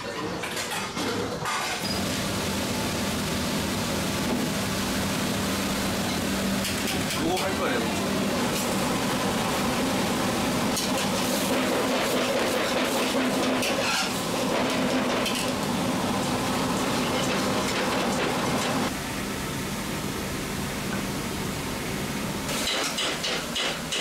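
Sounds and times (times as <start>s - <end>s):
chicken frying in a pot: 1.8s - 18.9s
gas burner: 1.8s - 19.4s, 20.7s - 24.0s
extractor fan: 2.0s - 22.5s.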